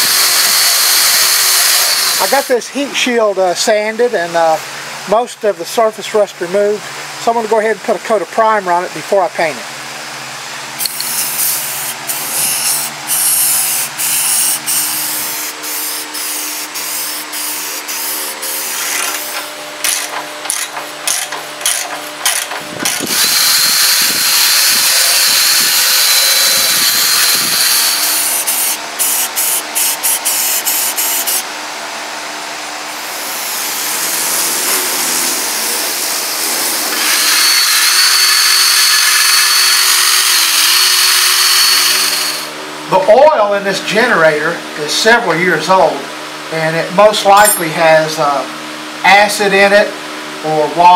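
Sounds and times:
drill motor whine: 0.0s - 2.6s, 10.8s - 20.6s, 21.6s - 31.5s, 32.9s - 42.6s
wire brush scraping metal: 10.9s - 21.9s.

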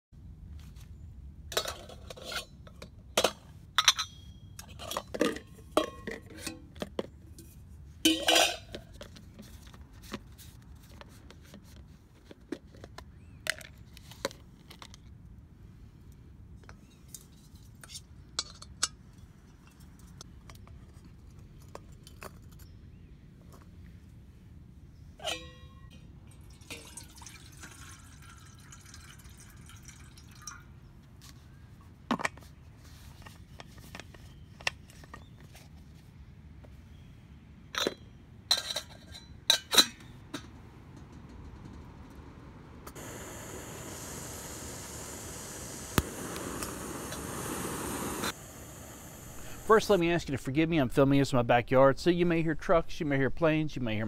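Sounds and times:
ringing metal clink: 25.2s - 26.1s
water pouring into kettle: 26.3s - 30.6s, 43.0s - 50.0s.

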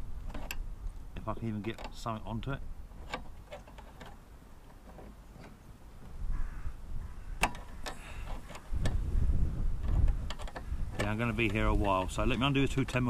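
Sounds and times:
spanner clicking on bolts: 9.8s - 13.0s.

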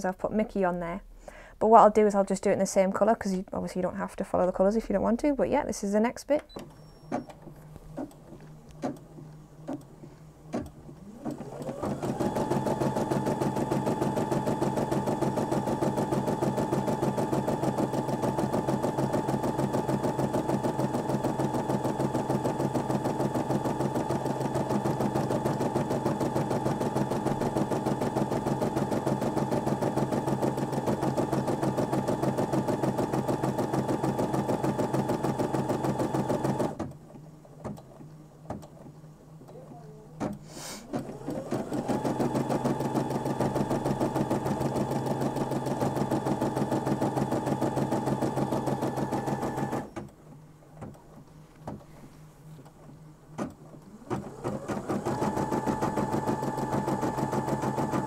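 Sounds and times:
embroidery machine stitching: 10.5s - 37.0s, 40.2s - 50.1s, 53.4s - 58.0s.

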